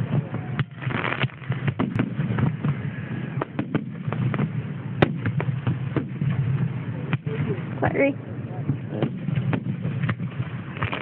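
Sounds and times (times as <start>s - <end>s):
fireworks bangs and crackles: 0.0s - 11.0s.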